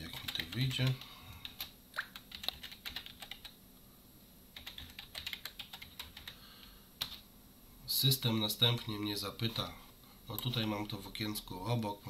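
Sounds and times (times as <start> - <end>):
computer keyboard typing: 0.0 - 3.6, 4.6 - 6.4, 7.0 - 7.2.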